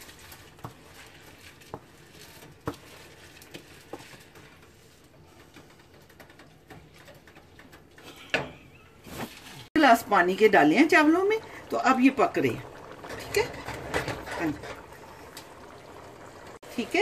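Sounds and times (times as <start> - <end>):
rice grains pattering into pan: 0.0 - 8.0.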